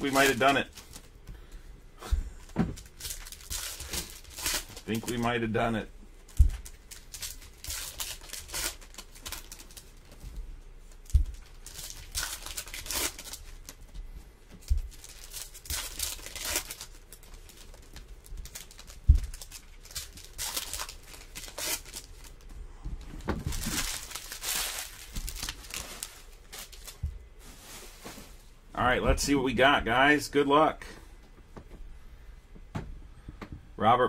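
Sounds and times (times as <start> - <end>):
foil wrappers tearing and crinkling: 0.0 - 1.2, 2.8 - 5.5, 6.3 - 10.2, 11.0 - 13.8, 14.6 - 22.4, 23.4 - 27.0.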